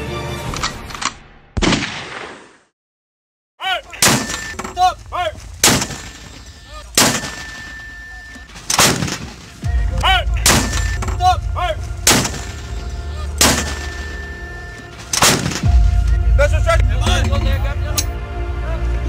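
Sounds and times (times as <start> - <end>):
artillery blasts: 4.0 - 9.7, 10.4 - 11.2, 12.0 - 12.8, 13.4 - 14.3, 15.0 - 15.9
low rumble: 9.6 - 19.0.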